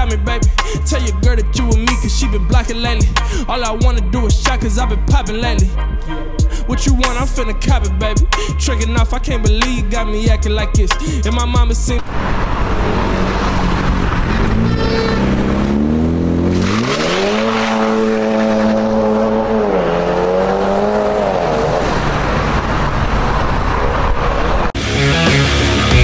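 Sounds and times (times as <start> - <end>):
music: 0.0 - 12.0, 24.8 - 26.0
car exhaust accelerating: 0.0 - 26.0.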